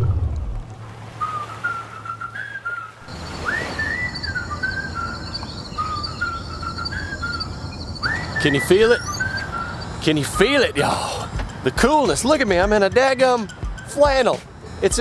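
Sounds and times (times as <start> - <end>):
person whistling a tune: 1.2 - 11.4.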